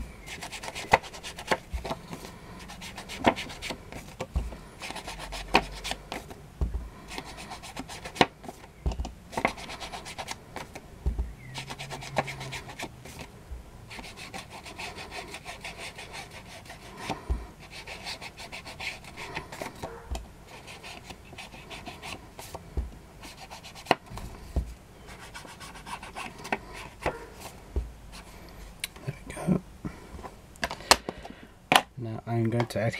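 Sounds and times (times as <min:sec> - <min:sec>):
foam tool scuffing paper: 0:00.2 - 0:13.3
soft knocks: 0:06.6 - 0:06.9, 0:11.0 - 0:11.5.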